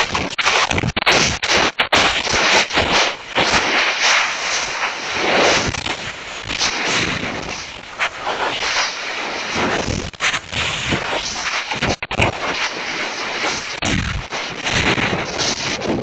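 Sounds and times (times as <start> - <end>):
brief crackles: 5.3 - 8.9.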